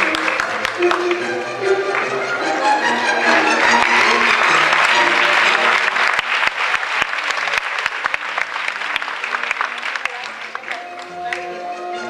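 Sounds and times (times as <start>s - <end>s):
audience applauding: 0.0s - 11.6s
background show music: 0.0s - 12.0s.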